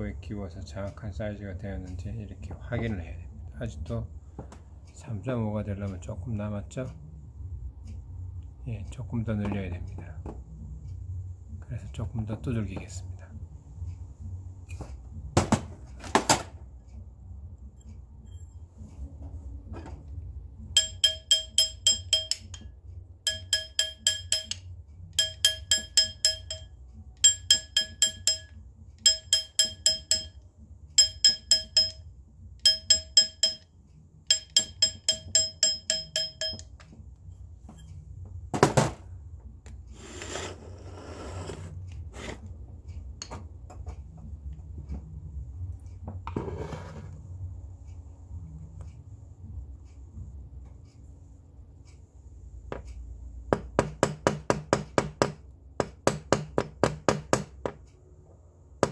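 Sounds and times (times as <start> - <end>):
hammer tapping metal ring: 20.7 - 37.0, 52.7 - 58.0.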